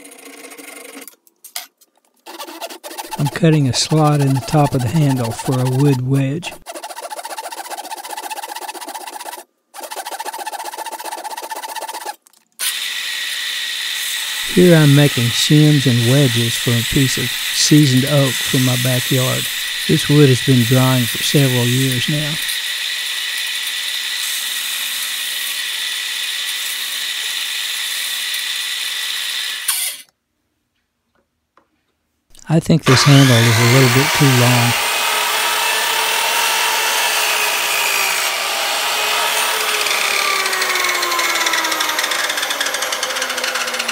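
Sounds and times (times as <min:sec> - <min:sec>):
hand saw cutting wood: 0:02.2 - 0:30.1, 0:32.4 - 0:43.9
belt sander running: 0:02.4 - 0:25.2, 0:32.8 - 0:43.9.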